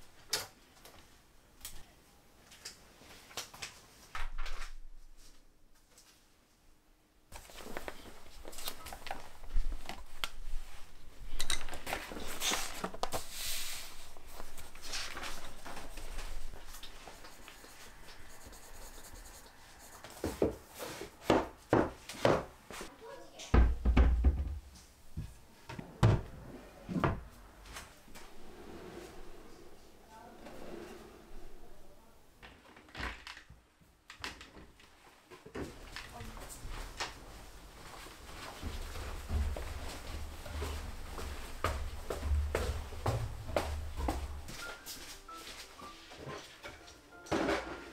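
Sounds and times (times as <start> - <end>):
rustling and handling noise: 7.3 - 22.9
cabinet doors knocking and bumping: 23.6 - 24.7.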